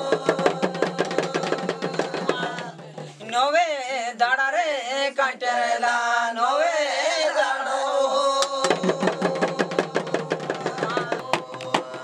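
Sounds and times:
barrel drums beaten with sticks: 0.0 - 3.1, 8.6 - 12.0.

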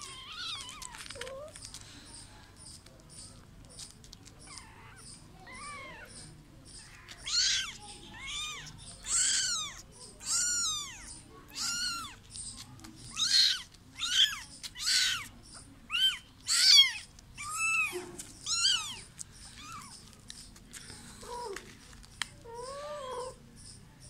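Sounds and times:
kitten meowing: 7.0 - 12.2, 13.1 - 15.3, 15.9 - 20.0.

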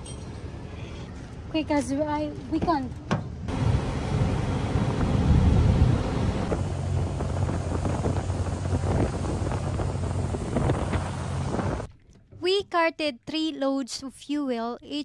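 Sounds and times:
outboard motor droning: 3.5 - 11.9
wind noise on microphone: 3.7 - 11.9.

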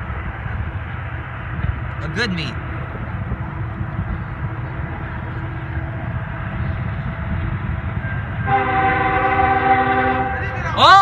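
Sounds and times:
steady low rumble: 0.0 - 11.0
locomotive air horn chord: 8.4 - 10.6.

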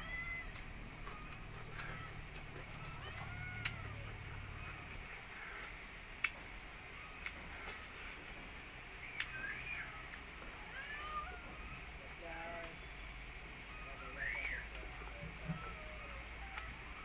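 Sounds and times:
person chewing: 0.5 - 6.5.

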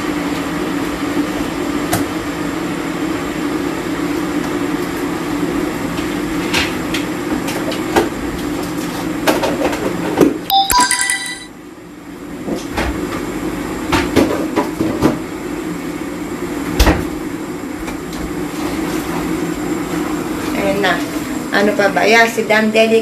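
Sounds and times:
short electronic chime: 10.5 - 11.5.

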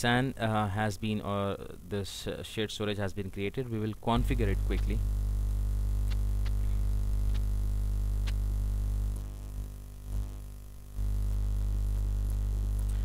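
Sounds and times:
electrical mains hum: 0.0 - 13.0
faint clicks: 6.0 - 7.5, 8.2 - 8.4, 12.2 - 13.0.

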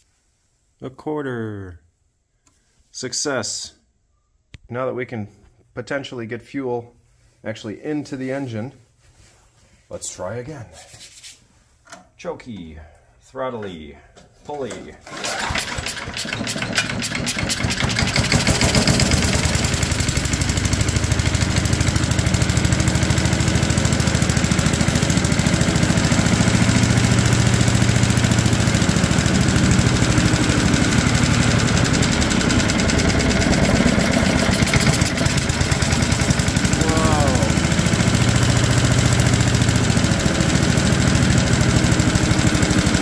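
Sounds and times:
starter cord pull: 15.0 - 19.6, 31.1 - 37.3
wood chipper engine running: 15.0 - 43.0.

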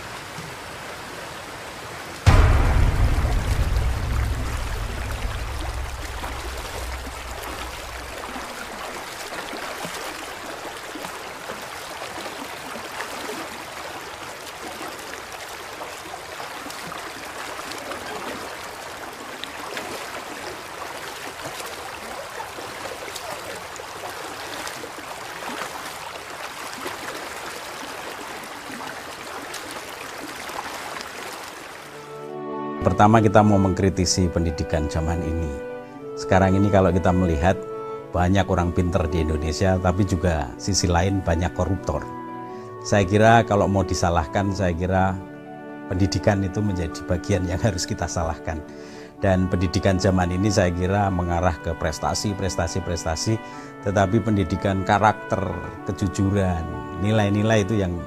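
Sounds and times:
stream rippling over stones: 0.0 - 32.2
low rumble: 2.3 - 8.8.

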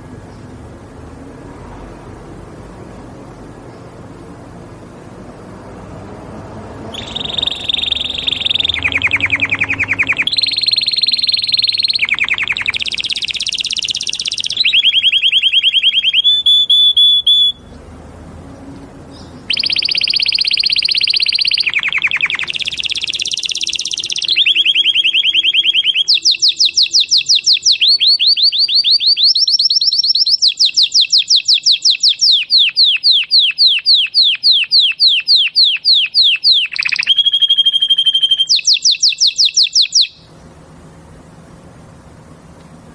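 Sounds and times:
canary singing trills: 6.8 - 40.6.

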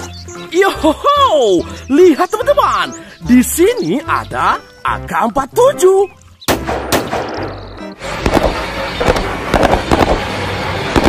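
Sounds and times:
background music: 0.0 - 11.0
rifle gunshots: 6.5 - 7.5, 8.2 - 10.3.

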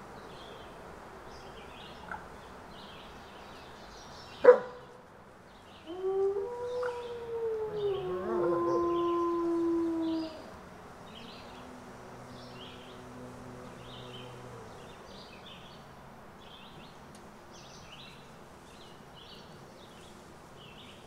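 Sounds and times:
faint outdoor hiss: 0.0 - 21.0
wolf howl: 5.8 - 10.6, 12.7 - 14.9
bird chirping: 6.6 - 17.0.

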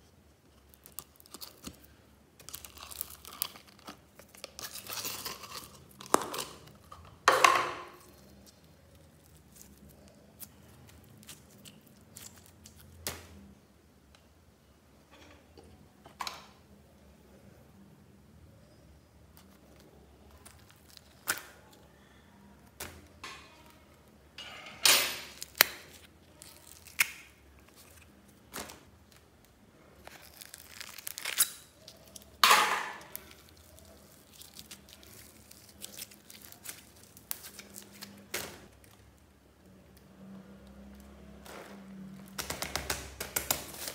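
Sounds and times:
plastic bag crinkling: 0.7 - 6.9, 25.3 - 39.0
slime sticky tearing: 25.4 - 28.0, 30.0 - 32.4.

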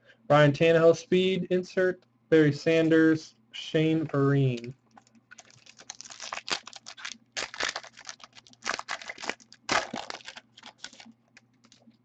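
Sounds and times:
foil wrapper crinkling: 4.9 - 12.0.

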